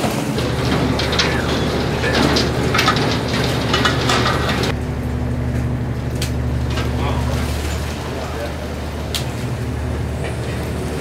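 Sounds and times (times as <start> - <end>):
boat engine humming: 0.0 - 11.0
water rushing and splashing: 6.4 - 11.0.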